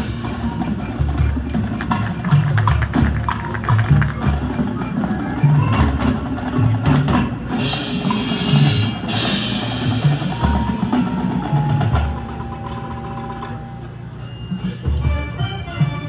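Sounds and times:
mallet keyboard percussion: 0:00.0 - 0:16.0
cymbal crashes: 0:07.6 - 0:11.0.

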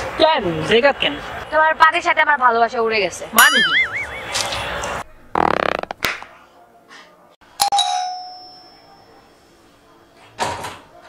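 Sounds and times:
rasping fart: 0:05.3 - 0:06.1
doorbell chiming: 0:07.6 - 0:09.2.

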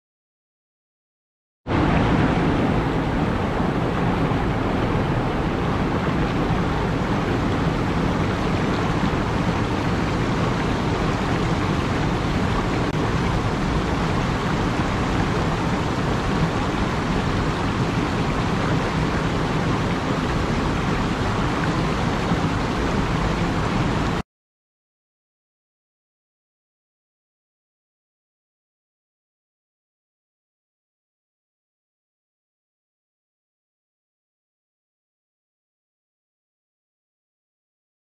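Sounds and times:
rushing water roar: 0:01.7 - 0:24.2.

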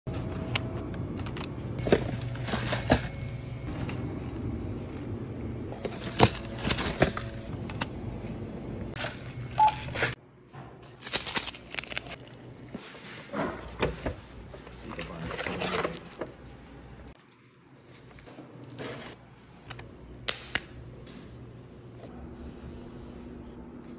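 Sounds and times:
steady low hum: 0:00.1 - 0:10.5
plastic packaging clicks and crinkles: 0:11.0 - 0:12.3
seasoning sachets crinkling: 0:11.0 - 0:12.7.

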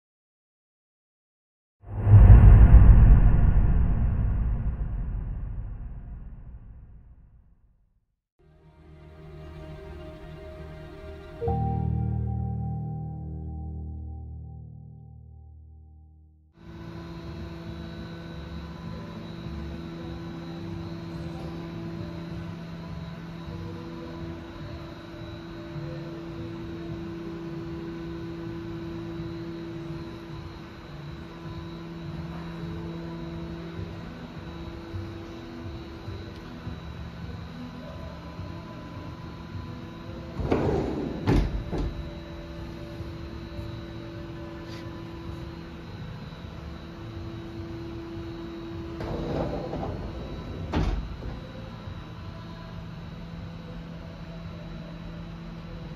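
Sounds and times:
machine fan-like hum: 0:16.7 - 0:55.9
sliding steel door on track: 0:40.4 - 0:42.0, 0:49.0 - 0:51.5
door stopping with sharp knock: 0:40.4 - 0:42.1.

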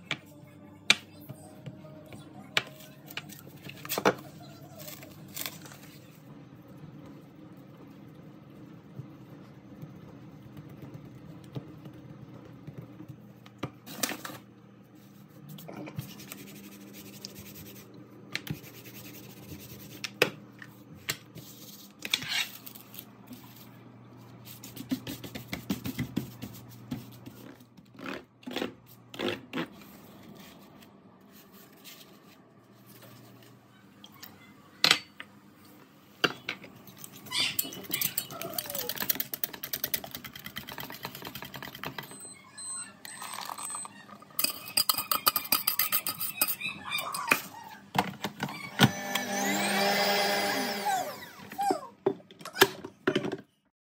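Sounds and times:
kitchen scrapes and rustles: 0:20.7 - 0:33.6.

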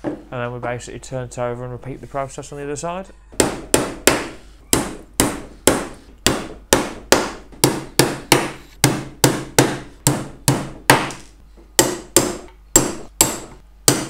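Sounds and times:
hammer striking nails into wood: 0:03.4 - 0:14.0.

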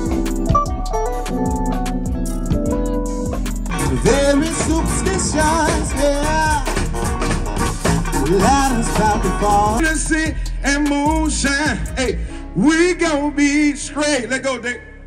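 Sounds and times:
live band music: 0:00.0 - 0:12.2
man singing: 0:03.7 - 0:07.4, 0:08.0 - 0:15.0.

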